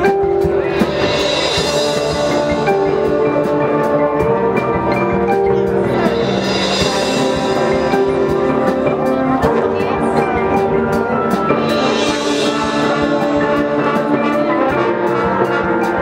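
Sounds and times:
marching band playing held chords: 0:00.0 - 0:16.0
marimbas and mallet percussion: 0:00.0 - 0:16.0.

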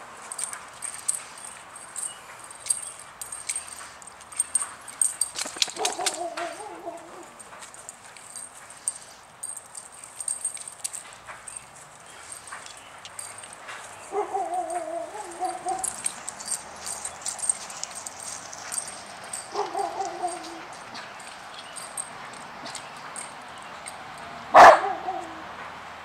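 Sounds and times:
dogs scuffling clicks: 0:00.0 - 0:24.3
dog whining: 0:03.5 - 0:07.5, 0:13.2 - 0:18.0, 0:18.6 - 0:23.3.

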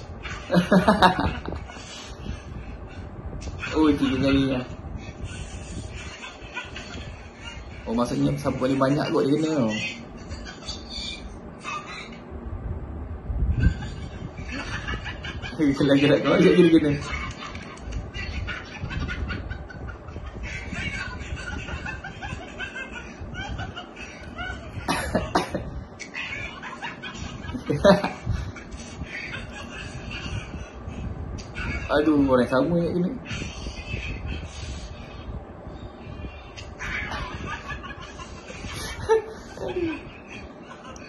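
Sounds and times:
people laughing and snickering: 0:00.0 - 0:03.7, 0:05.0 - 0:07.9, 0:13.5 - 0:31.9, 0:36.3 - 0:41.0
man snickering laughter: 0:24.8 - 0:25.7.

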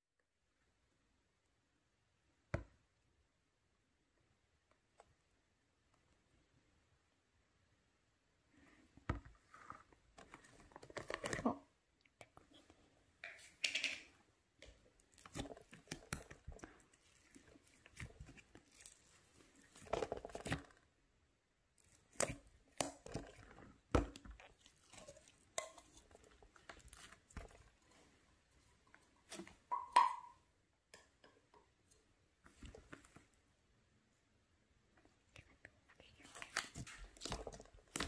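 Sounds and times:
sticky slime squelches: 0:14.5 - 0:21.0, 0:21.6 - 0:29.9, 0:35.1 - 0:38.0
plastic tub clicks and knocks: 0:29.4 - 0:30.4.

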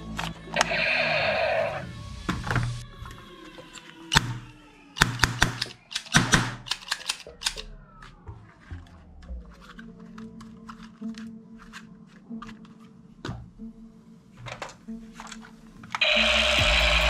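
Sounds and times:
toy cap gun cracks: 0:03.7 - 0:07.7.

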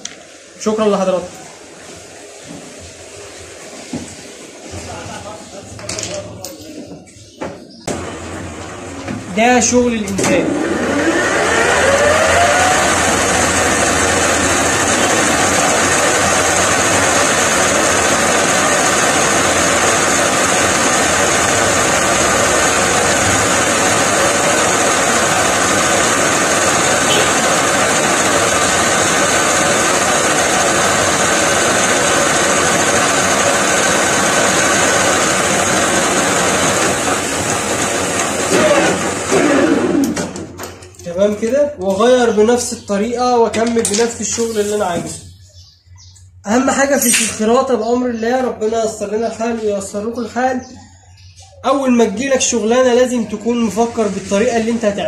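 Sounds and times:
metal lathe cutting steel: 0:10.4 - 0:40.2.

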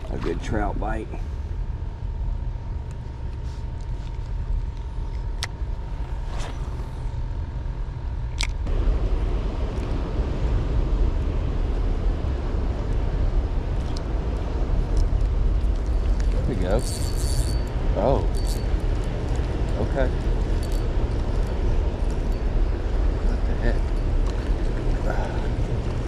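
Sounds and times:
choppy water: 0:00.0 - 0:00.8, 0:08.8 - 0:26.0
faint steady whine: 0:00.0 - 0:26.0
wind: 0:00.0 - 0:26.0.

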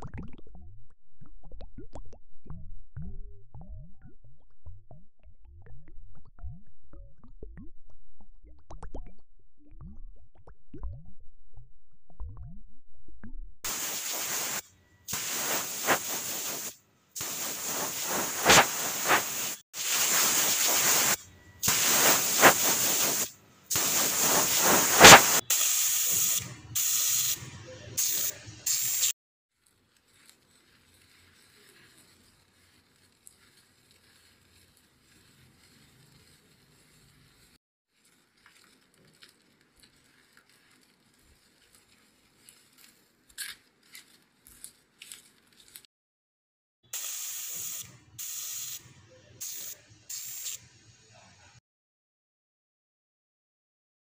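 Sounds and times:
air-water syringe hissing bursts: 0:13.7 - 0:27.4, 0:28.0 - 0:29.2, 0:46.9 - 0:48.8, 0:49.4 - 0:50.6.

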